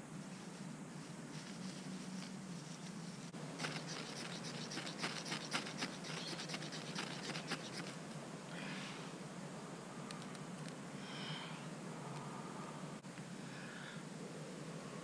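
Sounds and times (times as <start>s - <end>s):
dry grass crackling: 0.2s - 8.0s.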